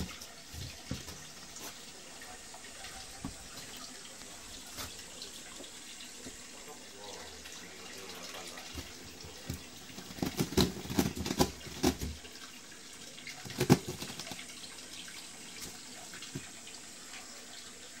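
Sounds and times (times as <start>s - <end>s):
steady hiss: 0.0s - 18.0s
cat knocking and scraping in wall: 8.7s - 12.3s, 13.5s - 14.4s.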